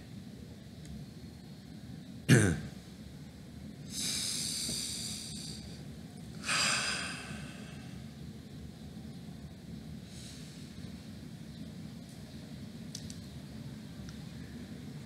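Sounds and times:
man coughing: 0:02.3 - 0:02.7
breath out: 0:06.4 - 0:08.0.

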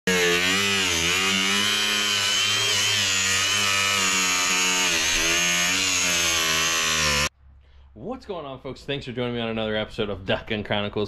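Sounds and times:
electric sander whining: 0:00.1 - 0:07.3.

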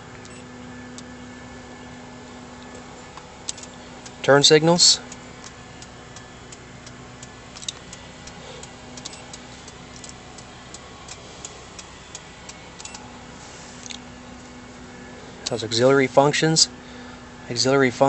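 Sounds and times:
faint steady hum: 0:00.0 - 0:18.0
turn signal ticking: 0:02.6 - 0:13.1.

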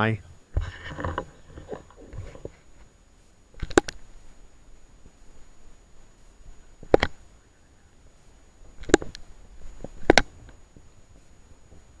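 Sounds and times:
faint ticks: 0:08.6 - 0:12.0.

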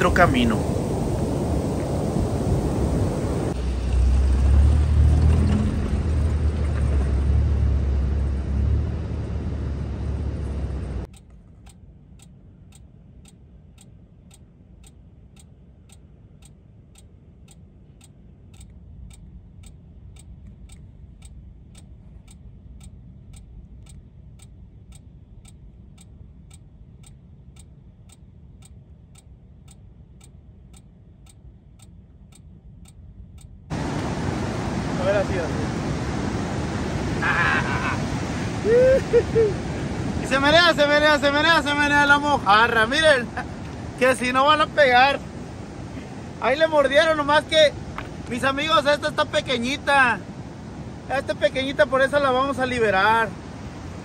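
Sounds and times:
quiet even ticking: 0:11.0 - 0:33.7.

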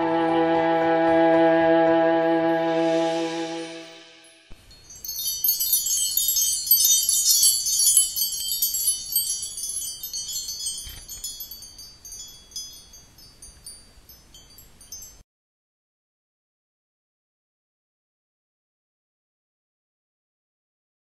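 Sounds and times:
chimes tinkling: 0:03.7 - 0:15.2.

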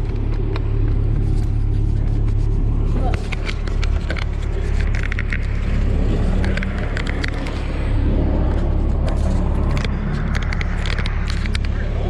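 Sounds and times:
diesel engine droning: 0:00.0 - 0:12.0
sharp crackling clicks: 0:03.0 - 0:12.0.

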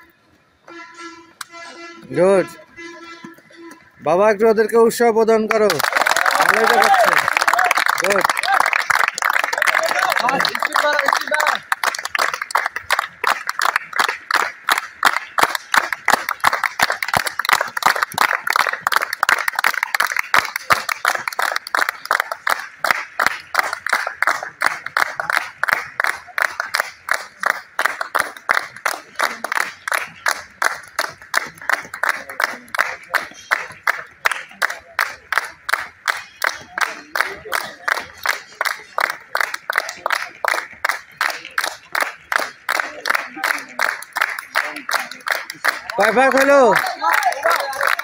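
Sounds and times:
people clapping in unison: 0:04.8 - 0:48.0
people cheering: 0:05.5 - 0:14.5, 0:28.2 - 0:48.0.

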